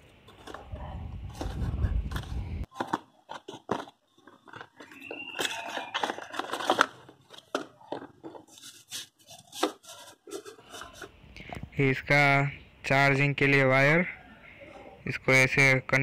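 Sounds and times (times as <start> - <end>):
packaging rustling: 0.3 - 11.2.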